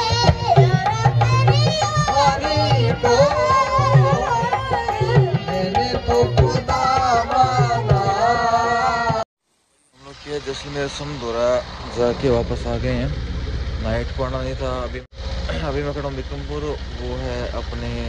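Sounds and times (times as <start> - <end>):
hand drums beat: 0.0 - 9.2.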